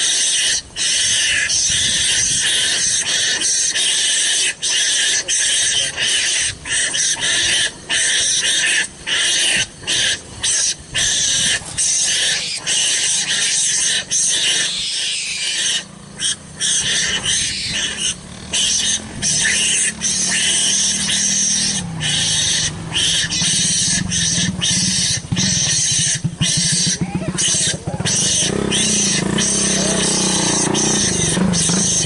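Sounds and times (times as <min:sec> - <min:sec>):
animal calling harshly: 0:00.0 - 0:32.0.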